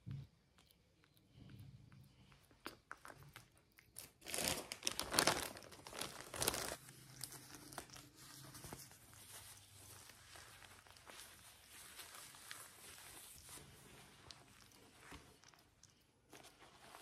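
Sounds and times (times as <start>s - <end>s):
plastic packet crinkling: 3.0s - 13.6s.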